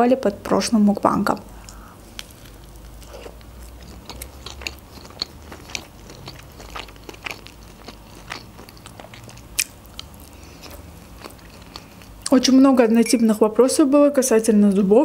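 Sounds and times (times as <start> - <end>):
chewing with wet mouth clicks: 1.6 - 12.4.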